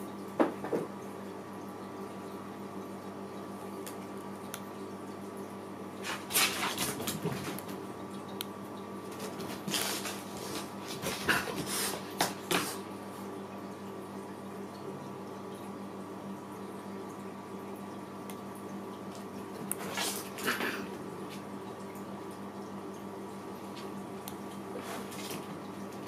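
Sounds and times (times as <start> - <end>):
cats scuffling on a hard floor: 6.0 - 7.8, 9.1 - 12.8.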